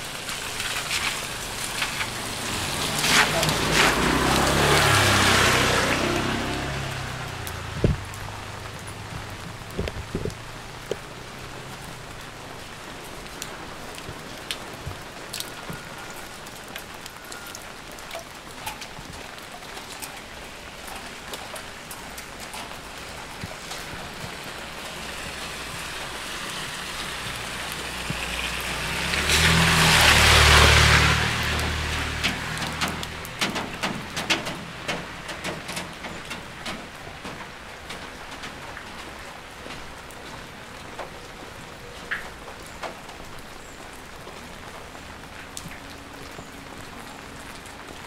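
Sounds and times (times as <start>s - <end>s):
car on wet road: 0.0s - 48.0s
rain on a wet street: 0.0s - 48.0s
sharp drips ticking: 0.0s - 48.0s
motor scooter passing: 0.6s - 10.8s, 24.1s - 33.3s.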